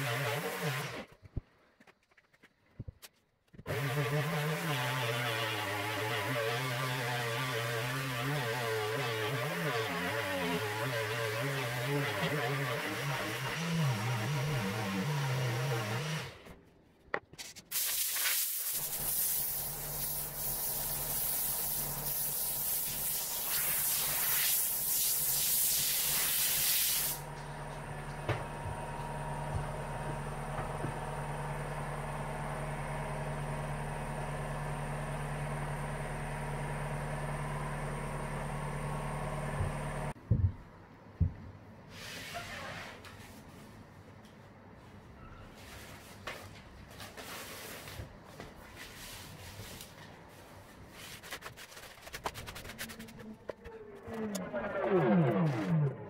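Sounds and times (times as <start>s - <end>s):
orbital sander running: 0.0s - 1.0s, 3.7s - 16.3s
air blow gun hissing: 17.8s - 27.2s.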